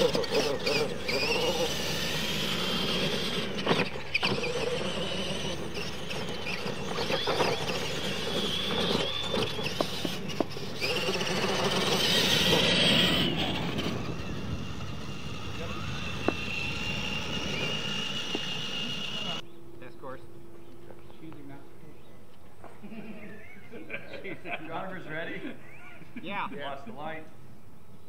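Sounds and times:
toy trucks knocking on ramps: 0:00.0 - 0:13.9
tyres scrabbling on dirt: 0:00.0 - 0:19.9
electric motors whining: 0:00.0 - 0:23.9.

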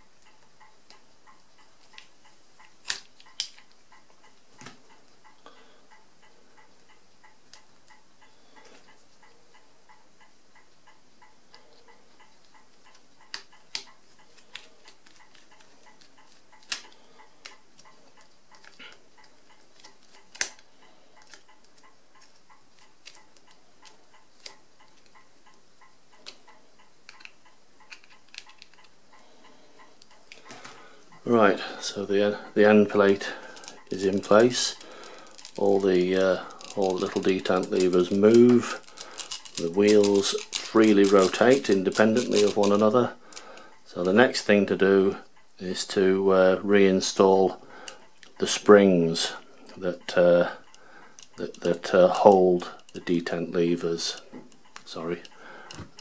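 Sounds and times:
faint regular ticking: 0:00.0 - 0:56.0.

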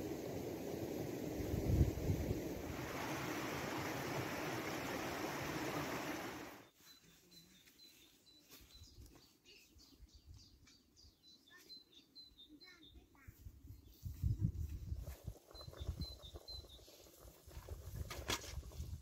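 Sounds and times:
small birds chirping: 0:05.4 - 0:18.0.

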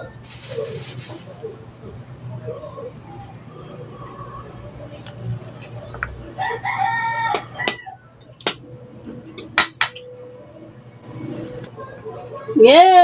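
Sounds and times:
rooster crowing: 0:06.4 - 0:08.2.

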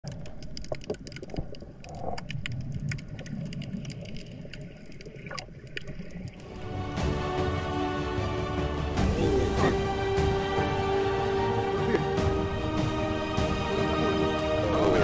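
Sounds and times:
underwater clicks and crackles: 0:00.0 - 0:06.4
water gurgles: 0:00.0 - 0:06.6.

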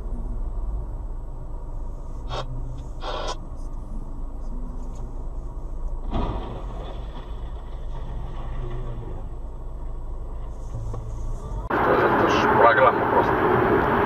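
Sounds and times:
car engine and tyre rumble: 0:00.0 - 0:14.0.

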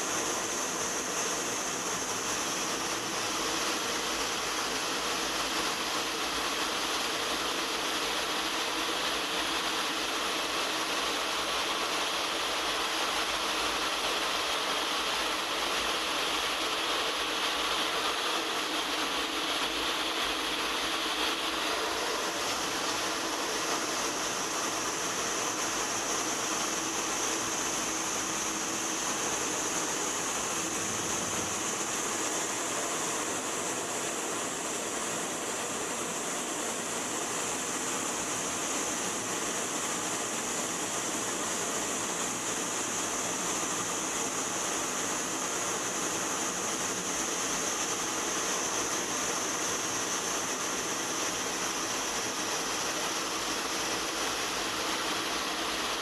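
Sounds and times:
jet aircraft engines: 0:00.0 - 0:56.0.

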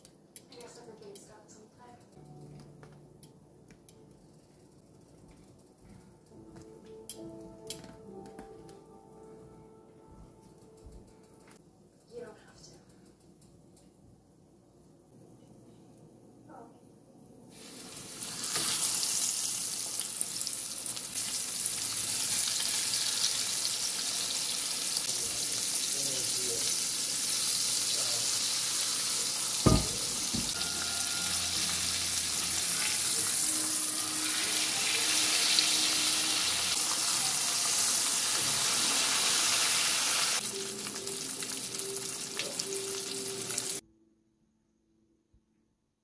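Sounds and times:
fish sizzling in hot oil: 0:17.6 - 0:43.8.

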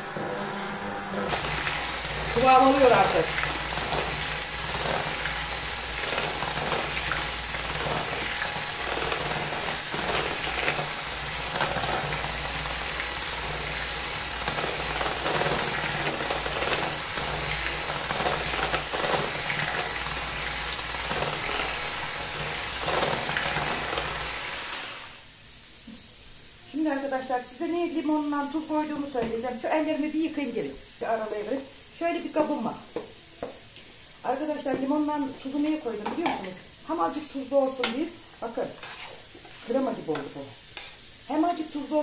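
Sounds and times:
electric kitchen appliance whipping: 0:00.0 - 0:25.3.

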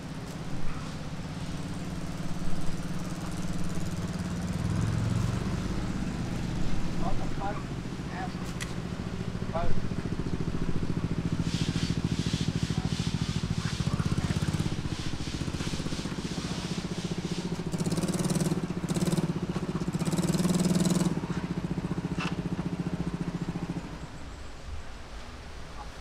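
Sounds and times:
vehicle engine running: 0:00.0 - 0:25.7.

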